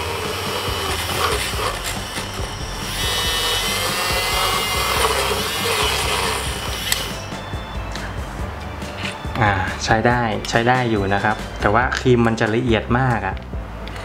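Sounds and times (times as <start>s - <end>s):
milk frother whisk whirring: 0.0s - 7.5s.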